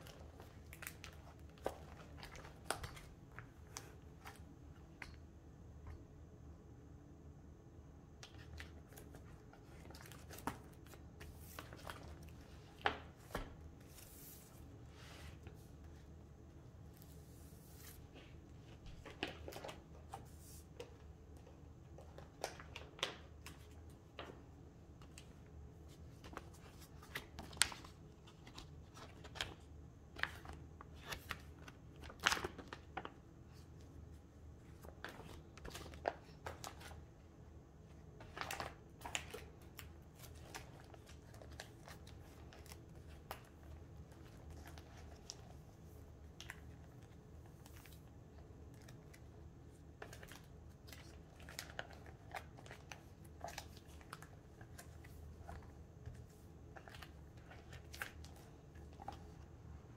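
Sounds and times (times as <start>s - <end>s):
cards rustling in plastic sleeves: 25.0s - 34.0s.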